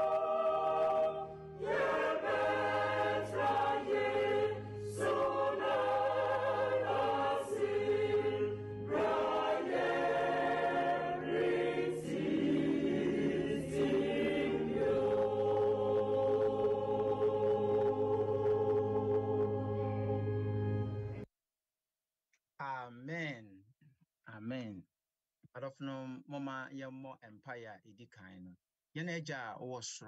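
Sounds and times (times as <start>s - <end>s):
choir singing a hymn: 0.0s - 21.1s.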